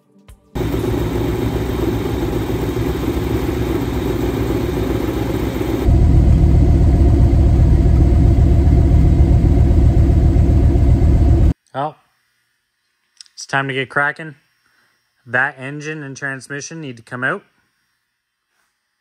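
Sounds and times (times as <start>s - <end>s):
car engine running at exhaust: 0.6s - 11.5s.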